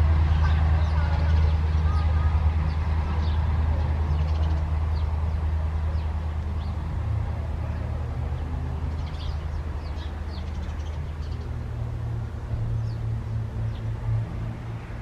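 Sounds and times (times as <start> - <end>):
low engine hum: 0.0 - 15.0
small birds chirping: 0.3 - 6.9, 7.7 - 11.7, 12.7 - 14.1.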